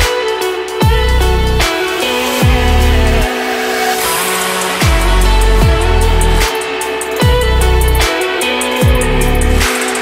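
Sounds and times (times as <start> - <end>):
electronic dance music: 0.0 - 10.0
deep bass drop: 2.4 - 3.3, 4.8 - 6.5, 7.2 - 8.1.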